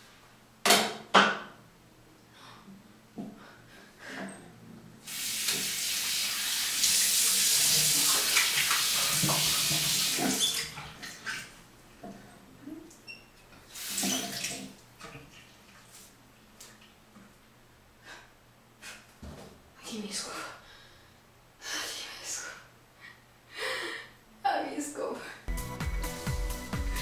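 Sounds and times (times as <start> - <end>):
tap water running into sink: 5.1 - 11.2, 13.8 - 14.8.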